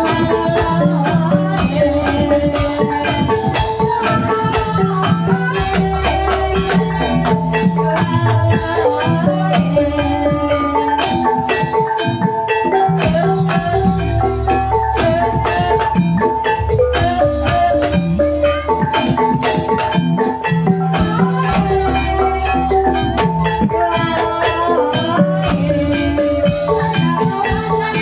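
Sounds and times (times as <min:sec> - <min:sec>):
drum beat: 0:00.0 - 0:22.2
mallet-struck pitched notes: 0:00.0 - 0:28.0.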